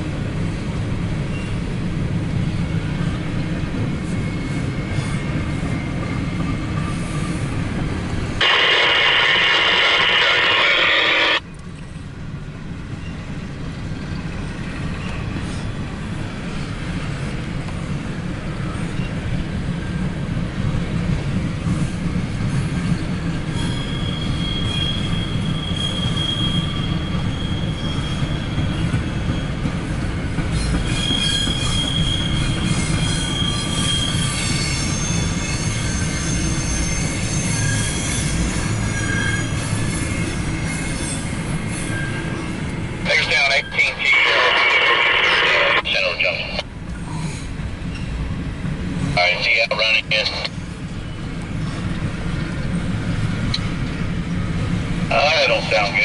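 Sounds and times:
wheels rumbling on rail: 0:00.0 - 0:56.0
high-pitched wheel squeals: 0:23.5 - 0:29.6, 0:30.6 - 0:42.5.

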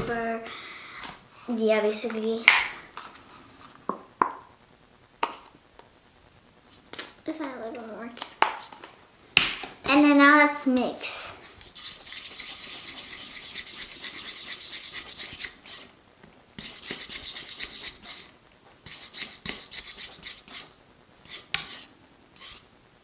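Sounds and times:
fork stirring slime scraping bowl: 0:11.6 - 0:15.9, 0:16.6 - 0:22.6.

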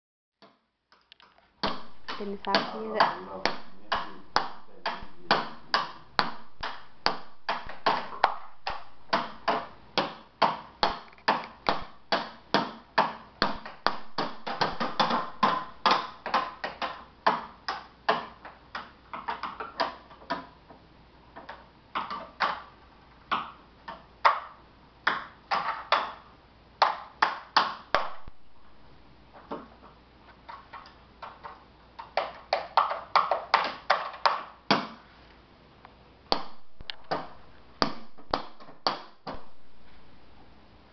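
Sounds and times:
drumsticks beating a wooden box: 0:01.6 - 0:20.5, 0:23.3 - 0:28.4, 0:36.3 - 0:39.5.

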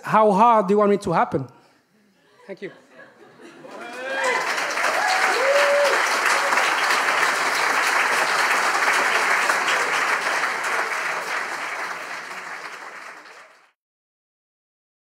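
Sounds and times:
audience applauding: 0:03.6 - 0:13.8.

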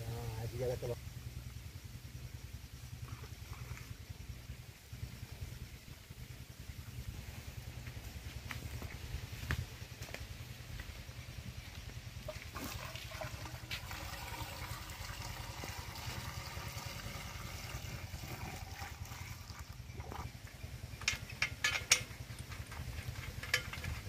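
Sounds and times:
water pouring into pump: 0:12.2 - 0:23.9.

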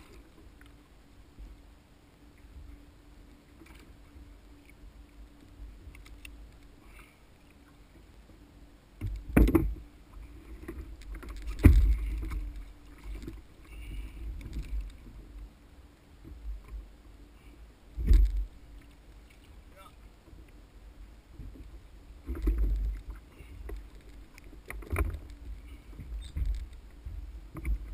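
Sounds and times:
small knocks and clicks: 0:05.4 - 0:06.7, 0:09.0 - 0:15.5, 0:21.4 - 0:27.9
fish thumping against kayak hull: 0:11.5 - 0:12.5.

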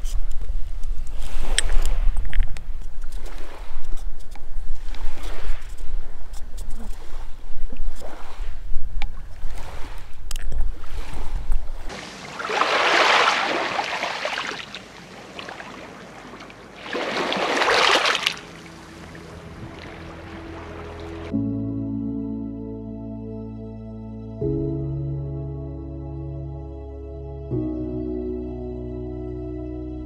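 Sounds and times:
wind buffeting microphone: 0:00.0 - 0:17.7
waves washing up pebble shore: 0:01.2 - 0:02.2, 0:04.6 - 0:21.3
soft music: 0:18.3 - 0:30.0.

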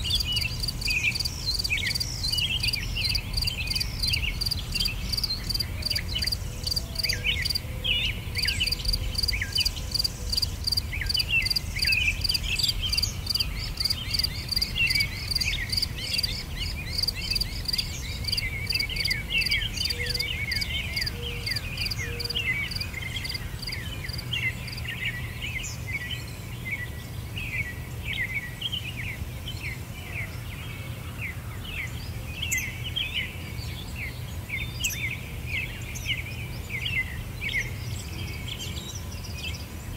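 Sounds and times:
pulsing high insect chirp: 0:00.0 - 0:07.6, 0:08.4 - 0:24.8
small birds chirping: 0:00.0 - 0:30.6.

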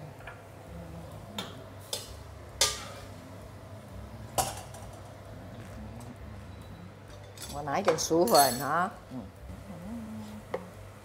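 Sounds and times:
low steady hum: 0:00.0 - 0:11.0
utensils clinking on cookware: 0:07.1 - 0:08.9.

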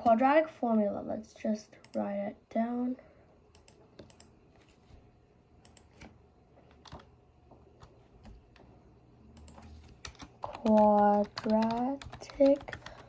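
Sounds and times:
faint laptop keyboard typing: 0:03.5 - 0:04.8, 0:05.6 - 0:08.7, 0:09.3 - 0:13.0.

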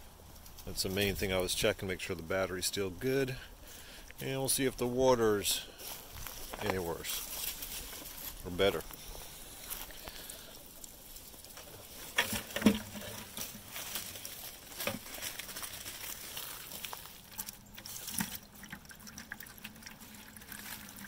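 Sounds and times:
sharp rustling knocks: 0:11.6 - 0:16.0
water running into plastic bucket: 0:14.8 - 0:21.0.

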